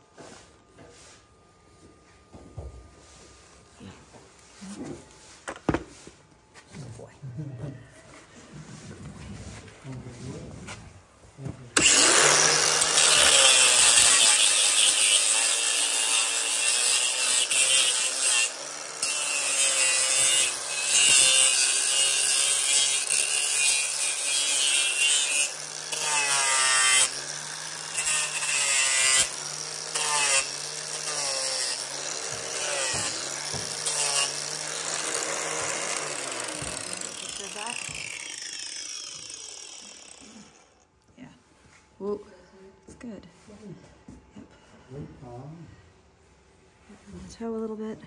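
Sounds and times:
angle grinder grinding hoof: 11.8s - 40.9s.

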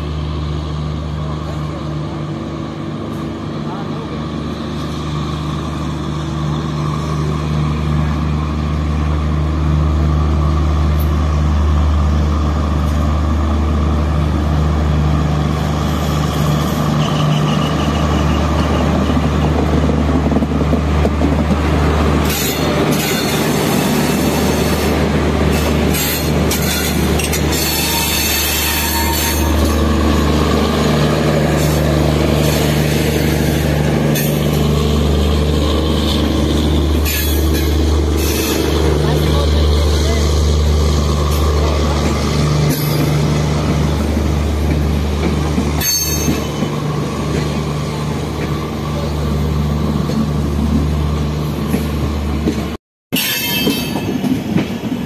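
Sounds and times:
train passing with low hum: 0.0s - 55.0s
train wheel squeal: 15.9s - 19.3s, 25.5s - 29.8s, 35.9s - 38.8s, 45.8s - 46.8s, 53.1s - 54.3s
coaches clattering over rail joints: 41.3s - 47.6s.

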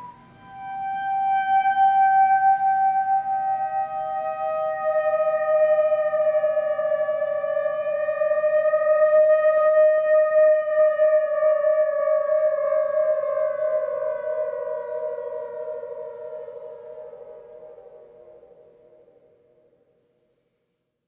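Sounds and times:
second sustained tone: 0.0s - 8.6s
theremin sliding notes: 0.0s - 19.2s.

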